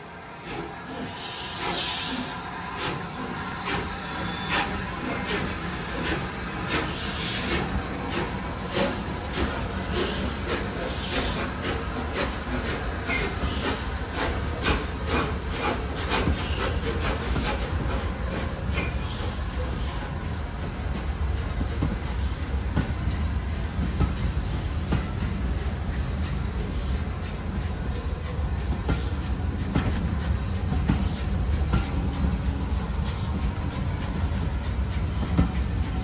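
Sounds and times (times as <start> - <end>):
hiss of steam: 0.0 - 36.0
steam train chugging: 0.0 - 36.0.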